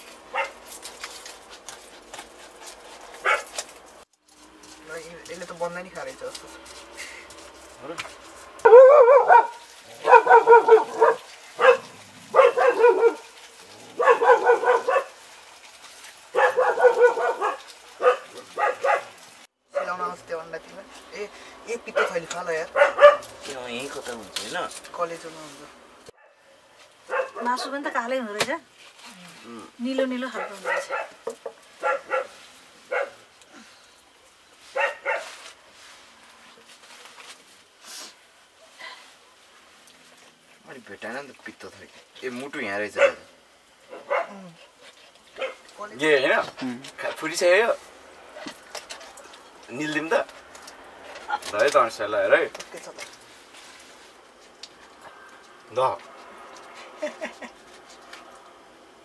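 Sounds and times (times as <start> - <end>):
dog barking: 0.3 - 0.6, 3.2 - 3.6, 8.6 - 13.3, 13.9 - 15.2, 16.3 - 20.1, 21.9 - 23.4, 26.2 - 26.5, 27.1 - 27.6, 30.3 - 31.2, 31.8 - 33.2, 34.7 - 35.3, 42.9 - 43.3, 43.9 - 44.4, 45.4 - 45.7.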